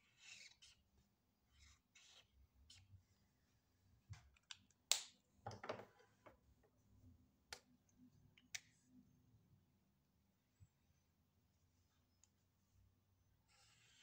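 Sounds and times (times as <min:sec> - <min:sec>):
plastic marker clicks and taps: 0:04.2 - 0:05.6.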